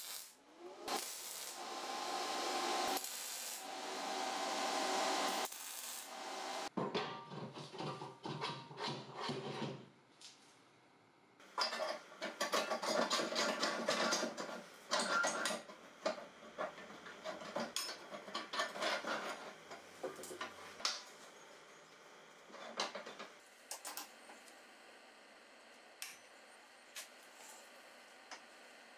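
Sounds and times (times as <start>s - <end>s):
welding hiss: 0.0s - 6.7s
metal scraping and clinking: 11.6s - 20.6s.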